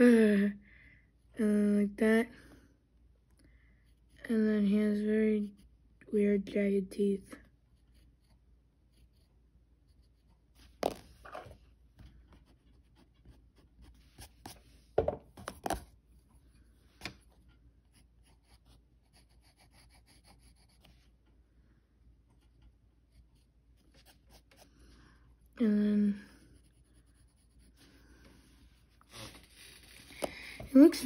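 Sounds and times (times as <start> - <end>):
pencil scratching on paper: 7.4 - 14.8, 15.6 - 21.2, 22.2 - 24.8, 26.2 - 31.0.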